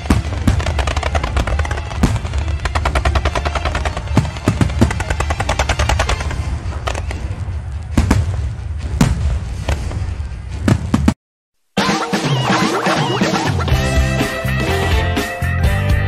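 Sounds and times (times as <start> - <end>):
fireworks bangs: 0.0 - 11.2.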